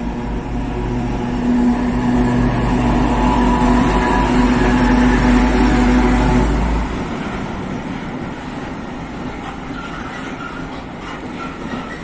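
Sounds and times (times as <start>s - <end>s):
locomotive diesel engine running: 0.0s - 7.3s.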